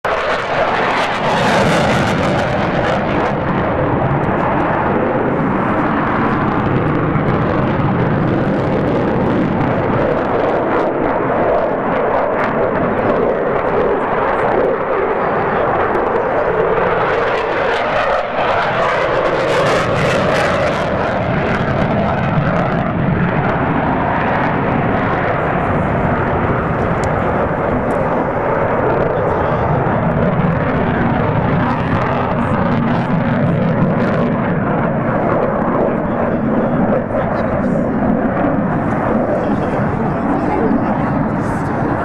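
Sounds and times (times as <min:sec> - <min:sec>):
jet fighter flying: 0:00.0 - 0:42.0.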